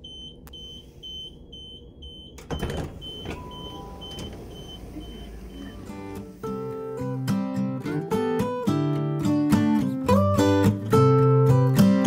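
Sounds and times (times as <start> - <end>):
steady low rumble: 0.0 - 7.2.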